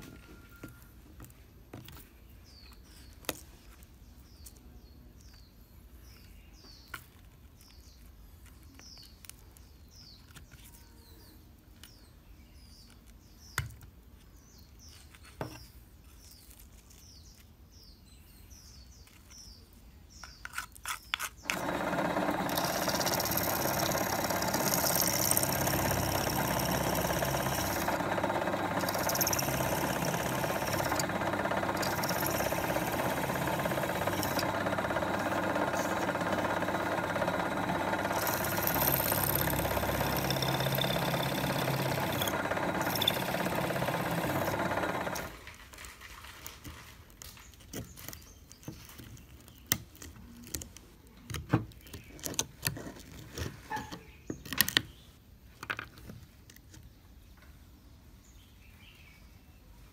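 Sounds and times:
small birds chirping: 0:01.3 - 0:45.2
sharp clicks: 0:21.4 - 0:45.4
bench drill boring into plastic: 0:21.4 - 0:45.6.

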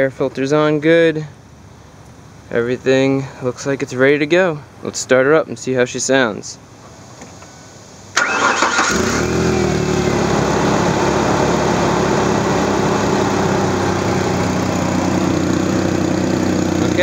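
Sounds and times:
car engine starting and idling: 0:08.1 - 0:17.0.

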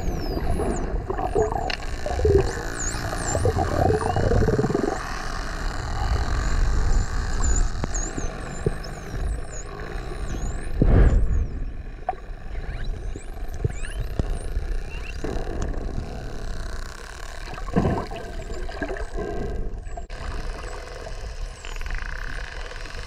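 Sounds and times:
dolphin whistles underwater: 0:00.0 - 0:05.1, 0:12.3 - 0:15.2
water rushing: 0:00.0 - 0:05.2
dolphin buzzing pulsed calls: 0:00.0 - 0:23.0.

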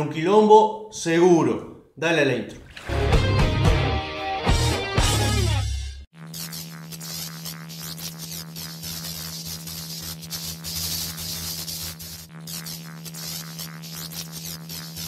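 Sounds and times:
buzzing electronic hum: 0:06.0 - 0:15.0
crackling static hiss: 0:06.1 - 0:15.0.

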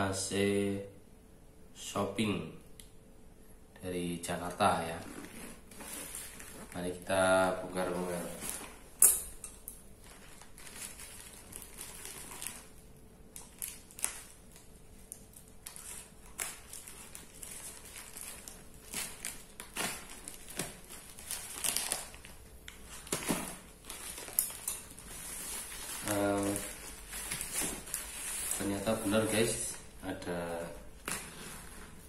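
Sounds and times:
plastic wrap crinkling: 0:04.8 - 0:09.0, 0:09.8 - 0:32.0
tape ripping: 0:13.4 - 0:22.3.

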